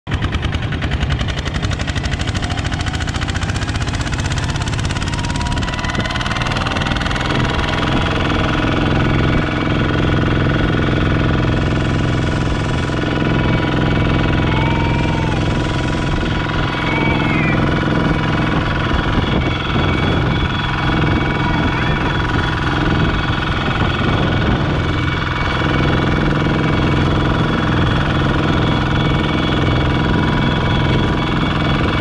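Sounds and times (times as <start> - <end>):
diesel tractor engine running: 0.0 - 32.0.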